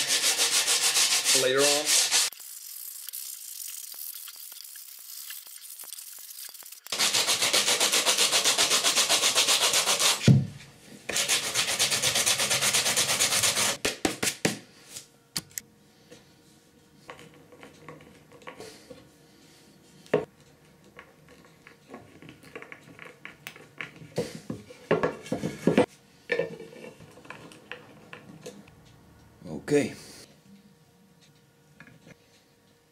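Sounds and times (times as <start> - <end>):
sanding block rubbing wood: 0.0 - 2.3, 6.9 - 10.3, 11.1 - 13.8.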